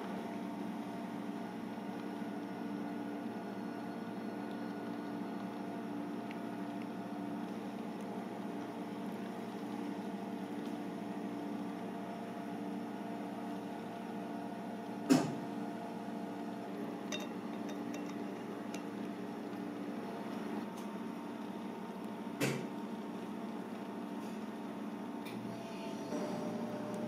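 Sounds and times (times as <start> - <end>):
machine hum: 22.8 - 27.0.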